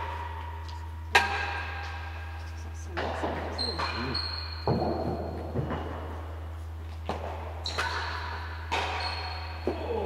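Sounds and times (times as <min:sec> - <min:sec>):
steady low hum: 0:00.0 - 0:10.0
tennis ball knocking on walls: 0:03.0 - 0:06.2.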